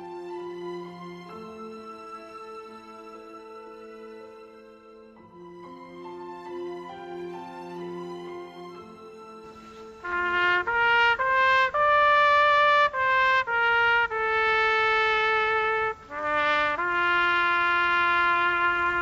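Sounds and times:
solo trumpet melody: 9.4s - 19.0s.

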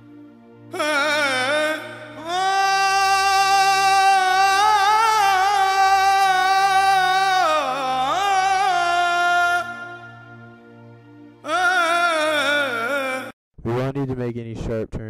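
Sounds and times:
person singing long wavering note: 0.7s - 10.6s, 11.4s - 13.3s.

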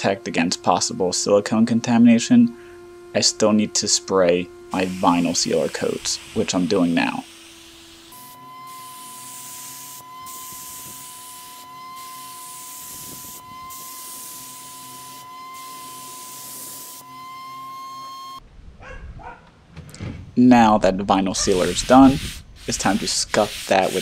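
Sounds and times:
steady high whine: 0.0s - 18.4s, 20.4s - 24.0s
spray gun hissing: 4.7s - 17.0s, 21.4s - 24.0s.

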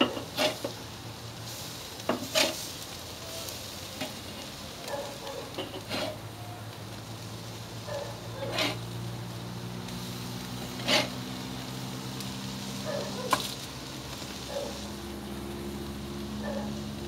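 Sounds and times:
metal spatula scraping grill grate: 0.0s - 6.5s, 7.8s - 9.0s, 9.9s - 11.5s, 12.7s - 15.0s.

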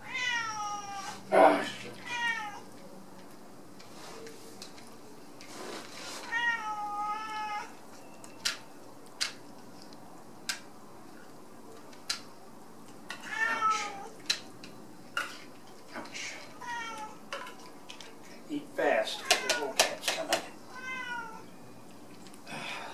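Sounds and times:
cat meowing: 0.0s - 1.2s, 2.0s - 2.7s, 6.3s - 7.8s, 13.2s - 14.1s, 16.6s - 17.2s, 19.2s - 19.9s, 20.7s - 21.5s.

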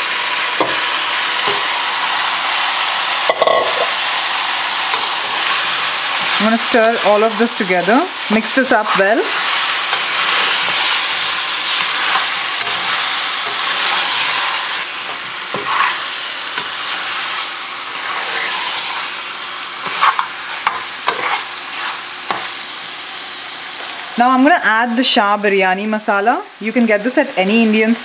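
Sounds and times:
meat sizzling in hot oil: 0.0s - 25.2s
metal spoon scraping a pot: 15.5s - 16.0s, 19.8s - 22.5s.

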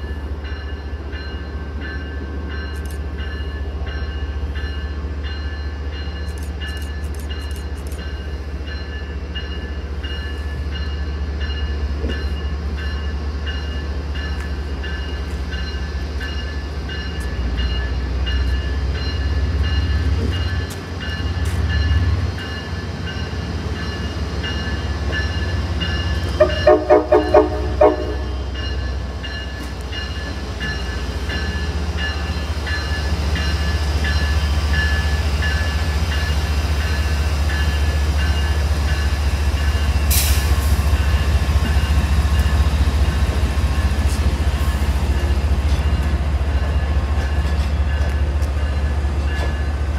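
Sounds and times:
diesel locomotive rumbling: 0.0s - 49.9s
short train horn blasts: 26.4s - 28.6s.

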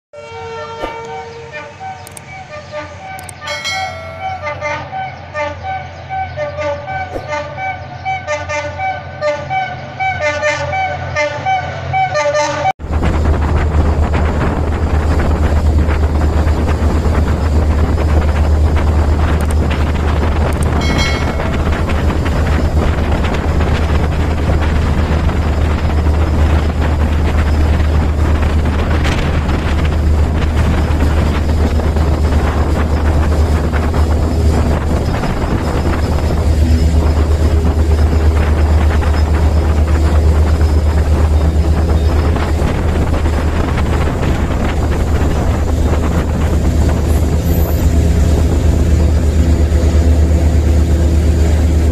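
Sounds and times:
train horn toot: 0.2s - 12.7s, 20.8s - 22.2s
diesel train engine hum: 0.2s - 51.9s
train wheels rolling: 12.8s - 51.9s.

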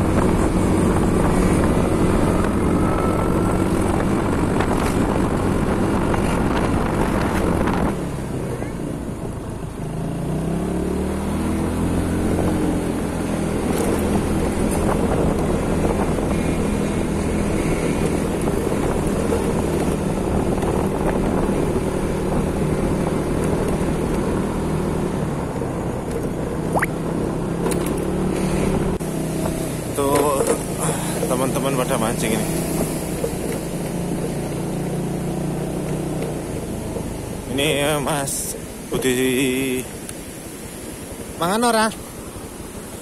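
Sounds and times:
wind buffeting microphone: 0.0s - 8.4s, 13.4s - 24.7s.

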